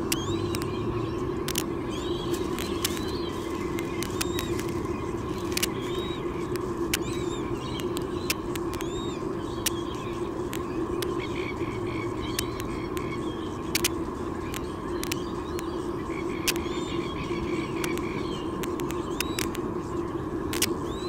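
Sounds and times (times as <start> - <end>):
sharp clicks: 0.0 - 0.8, 1.4 - 9.0, 9.6 - 11.2, 12.3 - 15.7, 16.4 - 16.8, 17.8 - 19.7, 20.5 - 20.8
bird chirping: 0.0 - 19.6
steady background hum: 0.0 - 21.0.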